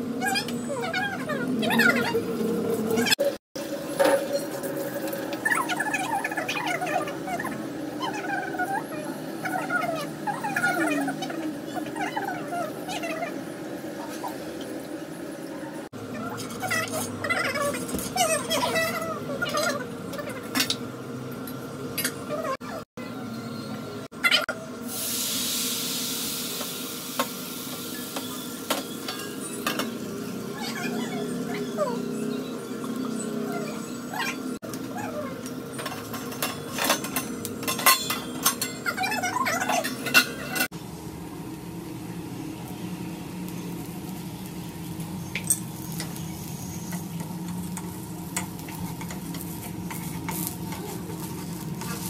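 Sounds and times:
food sizzling in a hot pan: 24.9 - 33.1, 40.7 - 52.0
animal squeaking and whining: 30.4 - 35.4.

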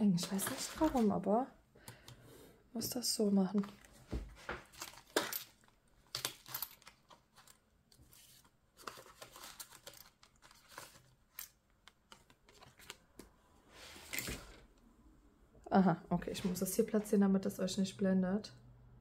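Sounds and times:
paper rustling and crinkling: 0.2 - 1.3, 6.3 - 11.2, 12.1 - 13.0.

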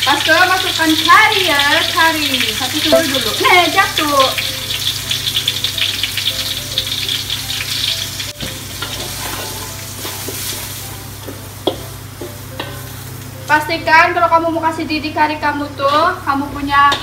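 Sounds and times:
curry sizzling in hot oil: 0.0 - 14.3
metal spatula scraping wok: 8.8 - 10.6.

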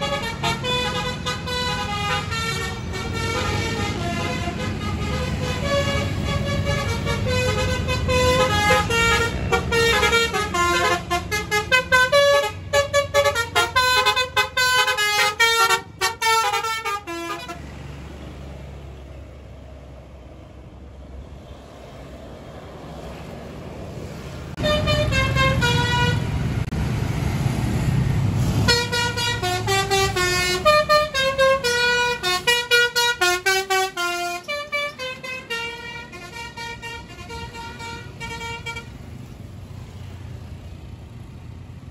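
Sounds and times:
musical air horns: 0.0 - 17.6, 24.6 - 26.4, 28.5 - 38.9
vehicle engine rumble: 0.0 - 41.9.

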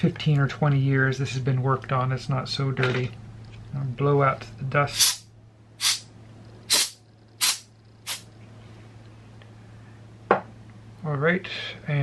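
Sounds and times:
hand air blower puffs: 5.0 - 5.2, 5.8 - 6.0, 6.7 - 8.2.

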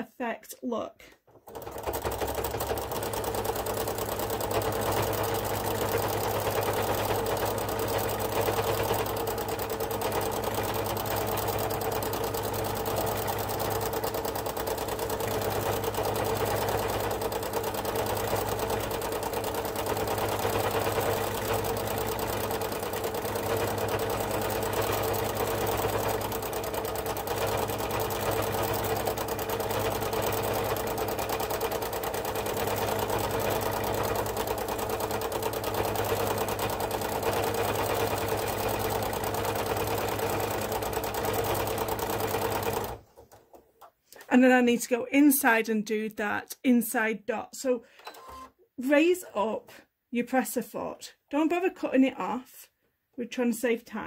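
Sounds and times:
sewing machine running: 1.3 - 43.5.

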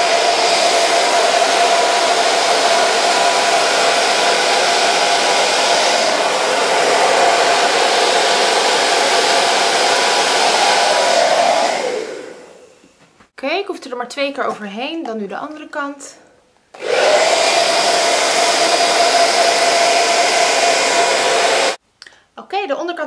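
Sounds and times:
hair dryer running: 0.0 - 12.8, 16.8 - 21.8
hair dryer switching off: 0.0 - 12.8, 16.8 - 21.8.

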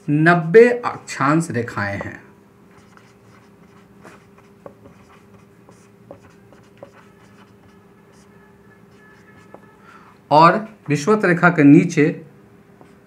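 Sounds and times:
faint steady hum: 0.0 - 13.0
marker squeaking on whiteboard: 2.7 - 9.8.

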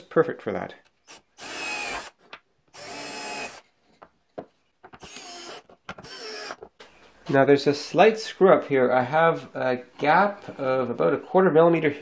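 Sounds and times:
cordless drill boring into plywood: 1.1 - 3.6, 5.0 - 6.6.

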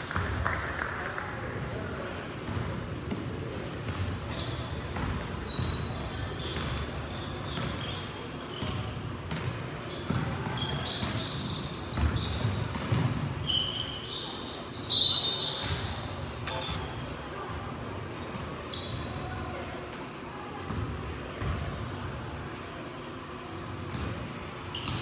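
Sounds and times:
sneakers squeaking on floor: 1.3 - 25.0
basketball bouncing: 3.8 - 6.8, 7.5 - 7.8, 8.6 - 11.2, 12.0 - 13.4, 15.6 - 15.9, 20.7 - 21.8, 23.9 - 25.0.

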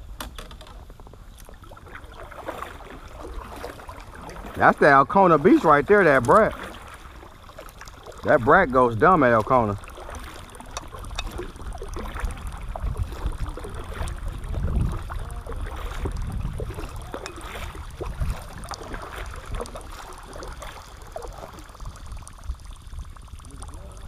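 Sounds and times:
paddle splashing in water: 0.1 - 24.0
wind on microphone: 8.2 - 24.0.

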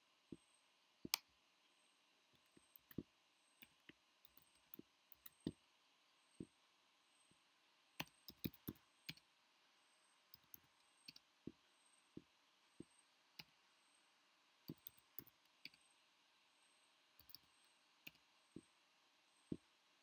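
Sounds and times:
computer keyboard typing: 8.0 - 8.8, 14.7 - 15.8.

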